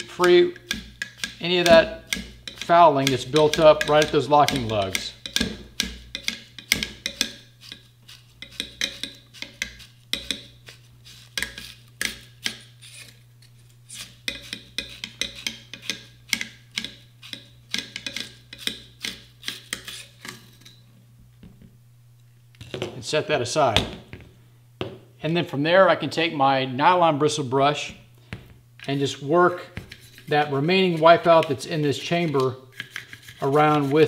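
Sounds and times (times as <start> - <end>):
brush scrubbing inside metal chamber: 29.9 - 34.0.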